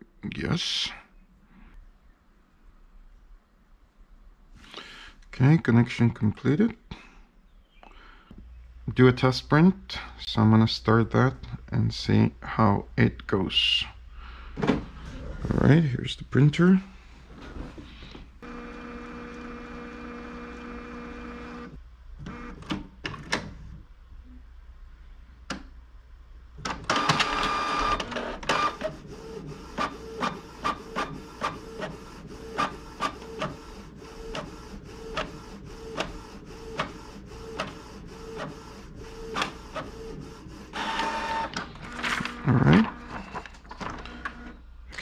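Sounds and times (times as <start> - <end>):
printer whirring strokes: 18.4 - 22.6, 26.9 - 44.6
printer motor whirring: 18.4 - 22.8, 26.7 - 44.6
printer clicks: 26.6 - 28.9, 40.8 - 43.1.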